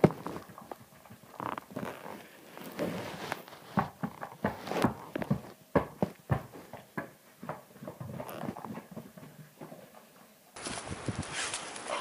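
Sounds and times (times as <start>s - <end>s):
dog paws pattering on carpeted stairs: 2.6s - 10.1s.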